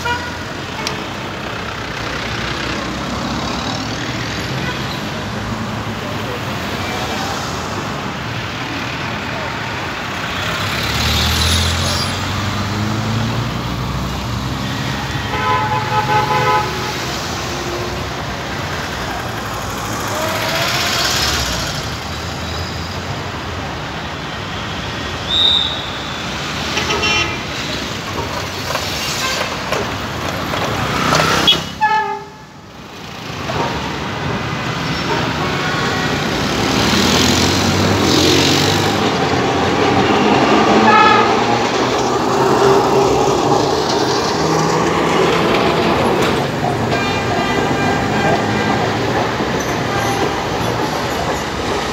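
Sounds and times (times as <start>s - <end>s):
tram running: 0.0s - 24.2s, 26.1s - 51.9s
street traffic: 0.0s - 51.9s
car horns honking: 14.9s - 17.0s, 25.3s - 27.5s, 31.1s - 32.4s, 40.8s - 41.6s, 46.8s - 50.6s.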